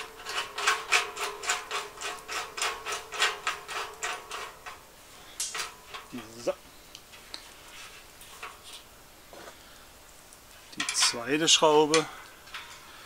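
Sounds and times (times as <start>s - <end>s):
screw scraping and clicking: 0.0s - 8.9s.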